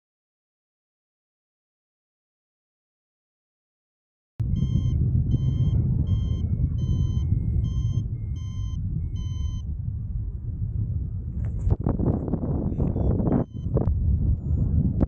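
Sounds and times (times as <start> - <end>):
wind rumbling on microphone: 4.4 - 15.0
variometer short beeps: 4.5 - 9.7, 12.8 - 13.9.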